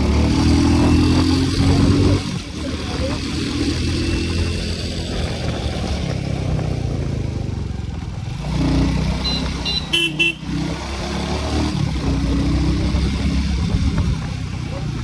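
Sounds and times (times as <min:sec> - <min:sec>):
motorcycle engine running: 0:00.0 - 0:15.0
motorcycle horn toots: 0:09.1 - 0:10.6.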